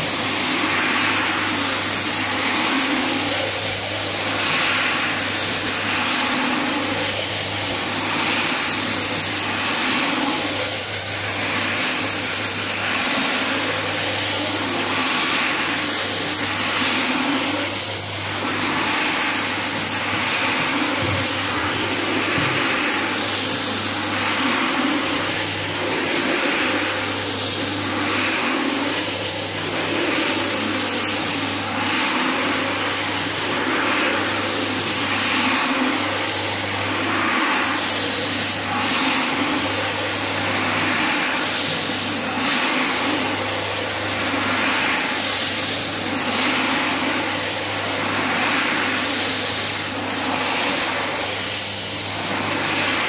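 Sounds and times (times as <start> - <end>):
floor scrubber motor hum: 0.0 - 53.0.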